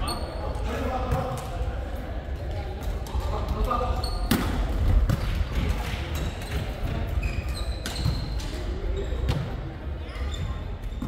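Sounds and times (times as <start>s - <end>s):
sneakers squeaking on wooden court: 4.0s - 4.4s, 6.1s - 11.0s
volleyball struck with sharp smacks: 4.2s - 6.0s.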